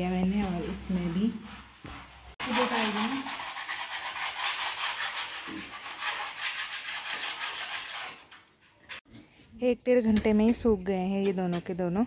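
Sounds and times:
hand sanding plaster wall: 0.0s - 9.1s.

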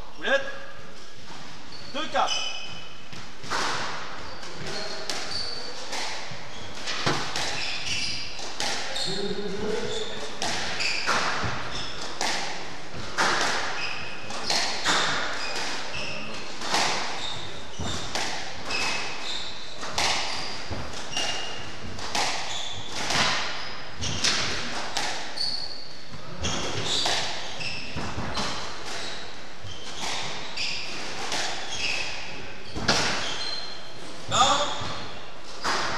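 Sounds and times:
shoes squeaking on wooden floor: 1.2s - 12.3s, 13.0s - 24.7s, 25.3s - 35.9s
squash ball struck by rackets: 3.2s - 7.7s, 8.4s - 9.0s, 10.2s - 15.9s, 16.6s - 17.2s, 17.8s - 19.2s, 19.8s - 25.4s, 26.4s - 29.0s, 29.8s - 33.4s.

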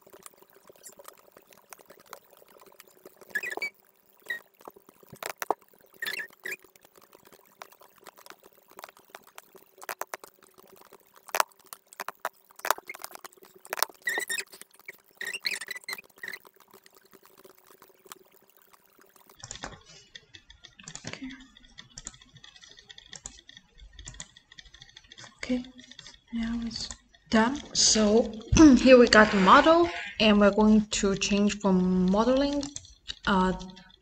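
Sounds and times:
faint steady hum: 0.0s - 34.0s
mouse and keyboard clicks: 3.2s - 18.2s.

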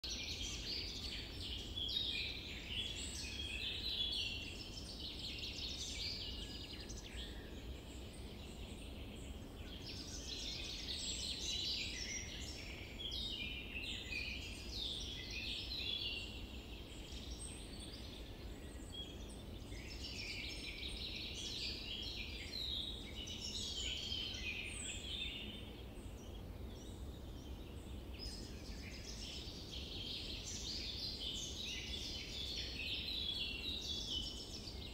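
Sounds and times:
birds chirping and twittering: 0.0s - 34.9s.

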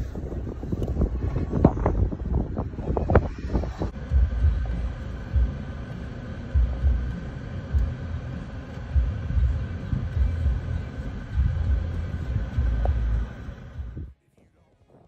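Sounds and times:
wind buffeting microphone: 0.0s - 5.7s
vehicle noise: 0.0s - 15.0s.

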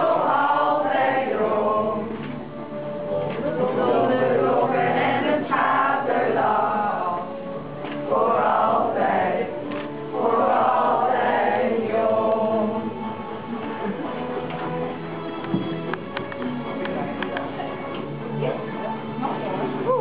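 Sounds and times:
group of people singing: 0.0s - 13.9s.

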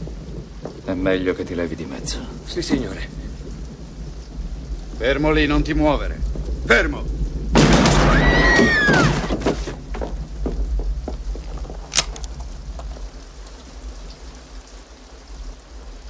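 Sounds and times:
sharp click: 11.9s - 12.3s.

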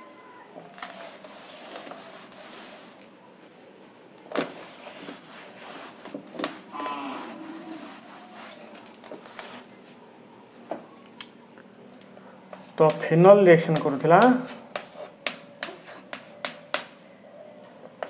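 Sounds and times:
cloth wiping blackboard: 0.8s - 3.0s, 4.4s - 10.0s, 12.6s - 16.8s.

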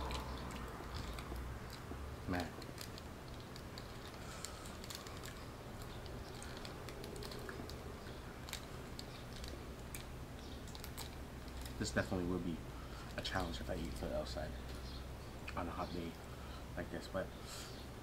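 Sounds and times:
faint low hum: 0.0s - 18.0s
plastic sachet crinkling and tearing: 0.1s - 12.0s.

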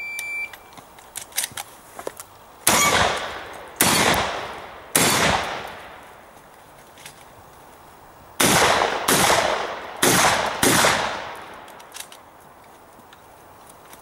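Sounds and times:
shotgun shots: 2.7s - 6.0s, 8.4s - 11.8s.

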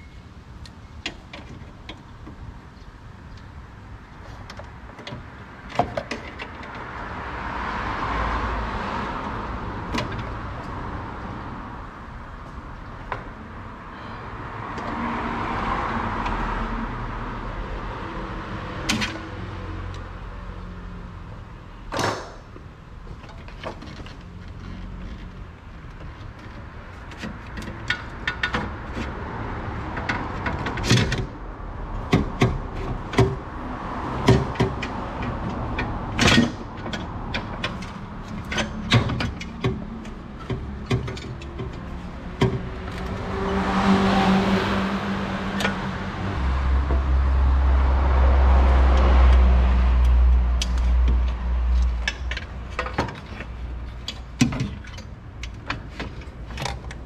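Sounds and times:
vehicle passing by: 6.8s - 21.4s, 28.7s - 54.0s.

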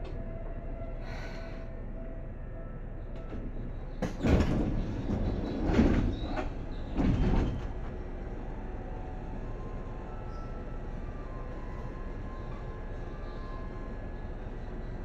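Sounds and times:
low hum from train car: 0.0s - 15.0s
train doors hissing and rumbling: 4.0s - 8.1s.

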